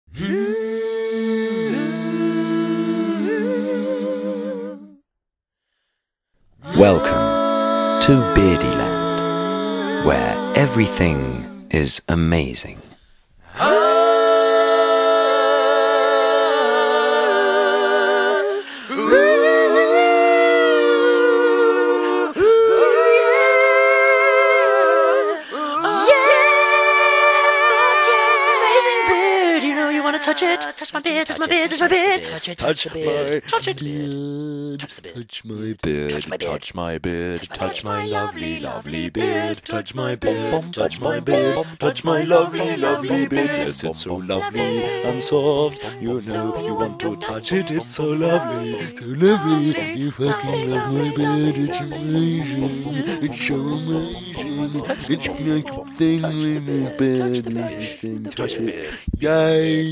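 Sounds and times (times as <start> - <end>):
a cappella humming in harmony: 0.1 - 5.1, 6.6 - 11.7, 13.4 - 59.9
upward vocal swoop: 9.9 - 14.2.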